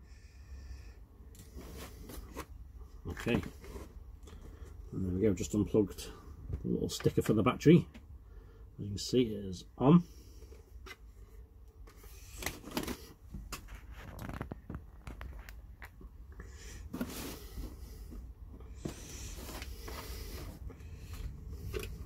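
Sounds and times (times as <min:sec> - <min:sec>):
low steady hum: 0:00.0 - 0:22.0
rustling: 0:10.3 - 0:16.0.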